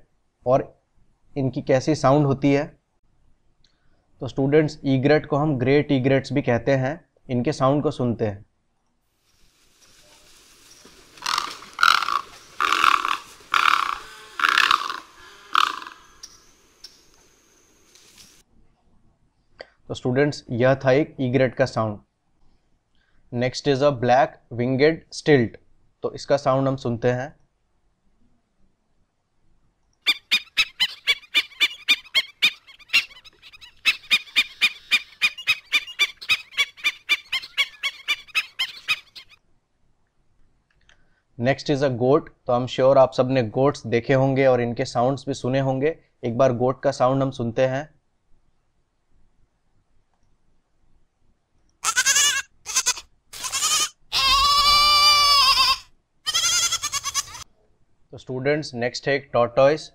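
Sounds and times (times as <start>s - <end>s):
high-pitched bird yapping calls: 11.1s - 17.1s, 30.1s - 39.4s, 51.8s - 57.4s
goat kid bleating: 51.8s - 57.5s.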